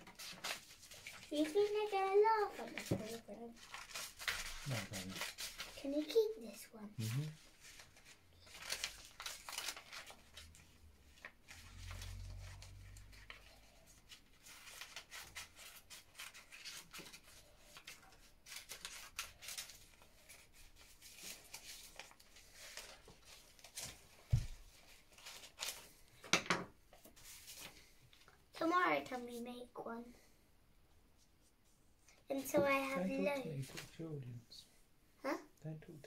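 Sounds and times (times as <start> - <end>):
paper rustling: 0.0 - 26.3, 26.9 - 28.4.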